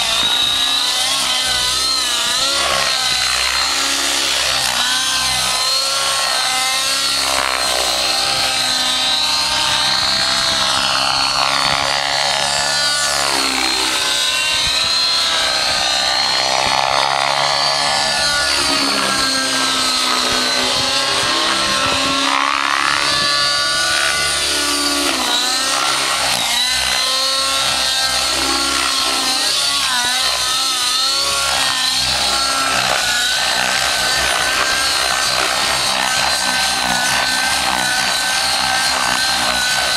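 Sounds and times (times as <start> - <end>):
model helicopter engine buzzing: 0.0 - 39.9.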